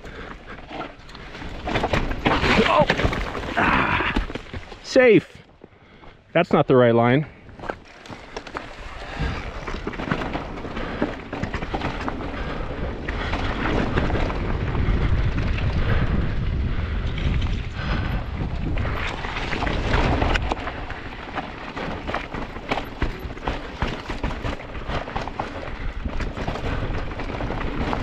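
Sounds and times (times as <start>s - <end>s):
bike rattles and knocks: 0.0s - 5.0s, 7.4s - 28.0s
tyres crunching on stones: 1.0s - 5.2s
wind rumble on microphone: 8.9s - 28.0s.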